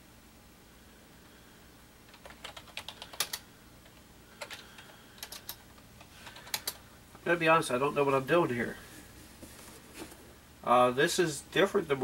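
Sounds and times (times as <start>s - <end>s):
typing on computer keyboard: 2.1s - 6.8s.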